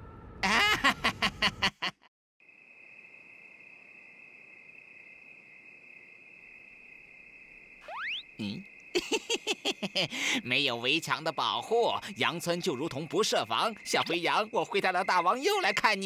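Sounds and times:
cartoon wolf laughing: 0.4s - 2.1s, 7.9s - 10.1s
crickets chirring: 2.4s - 16.0s.

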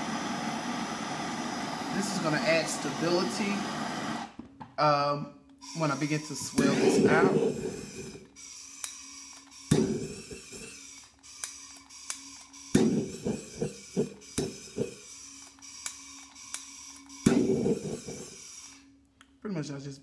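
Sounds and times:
gas blowtorch hissing: 0.0s - 4.3s, 6.5s - 8.2s, 9.7s - 10.7s, 12.8s - 15.0s, 17.3s - 18.4s.

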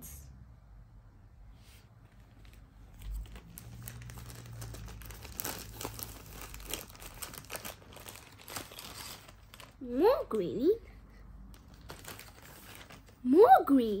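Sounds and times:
plastic packaging crinkling: 2.1s - 10.1s, 11.5s - 13.2s.

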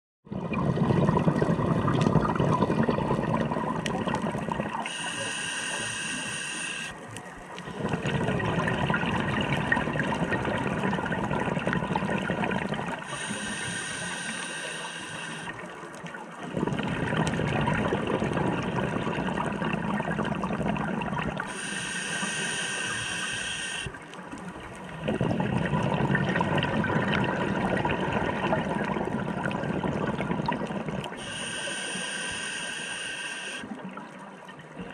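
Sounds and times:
exhaled air bubbling: 0.3s - 34.9s
regulator hissing inhales: 4.8s - 7.0s, 13.0s - 15.6s, 21.5s - 24.0s, 31.2s - 33.7s.

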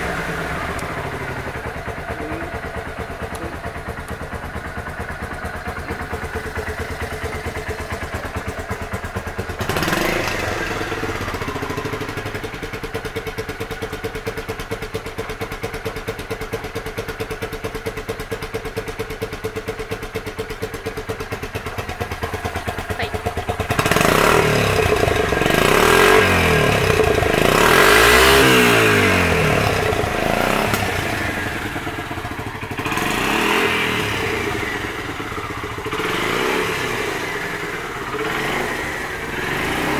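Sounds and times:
motorcycle engine idling and revving: 0.0s - 39.9s.

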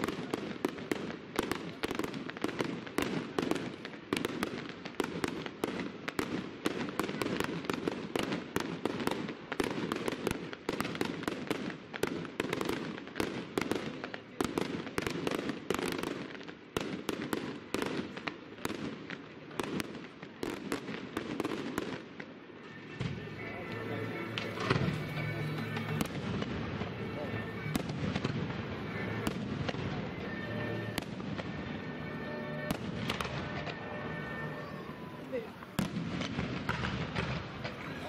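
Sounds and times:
fireworks bursting: 0.0s - 38.0s.

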